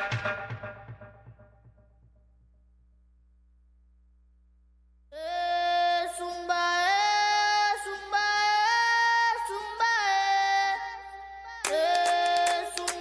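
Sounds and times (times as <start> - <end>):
women singing wordless notes: 5.1 - 13.0.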